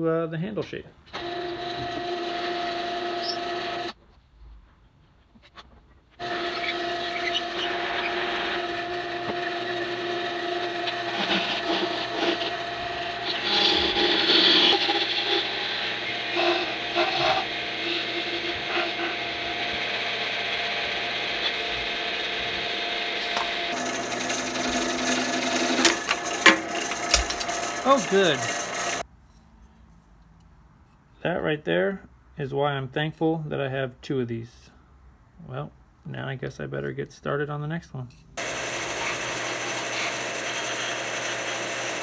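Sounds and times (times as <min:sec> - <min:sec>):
wood lathe humming: 0:01.2 - 0:03.9, 0:06.2 - 0:29.0, 0:38.4 - 0:42.0
gouge scraping wood: 0:13.2 - 0:29.0.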